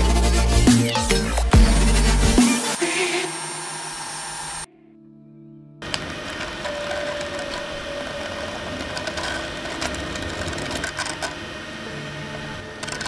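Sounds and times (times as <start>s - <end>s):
thin whine: 2.4s - 4.7s, 5.8s - 13.0s
printer mechanical whirr: 5.8s - 13.0s.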